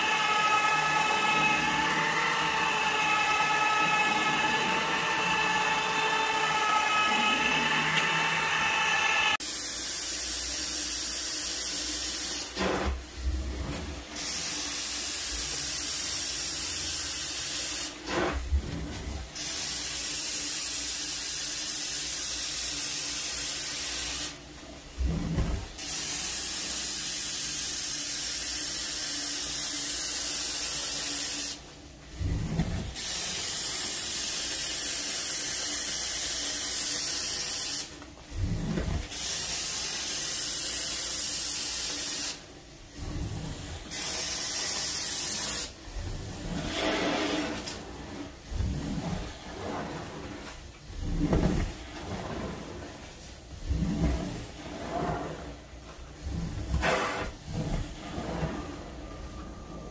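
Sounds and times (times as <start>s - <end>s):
floor machine motor whine: 0.0s - 9.4s, 42.8s - 44.0s, 44.6s - 59.9s
hiss of suction and spray: 0.6s - 24.4s, 25.0s - 31.6s, 32.2s - 59.7s.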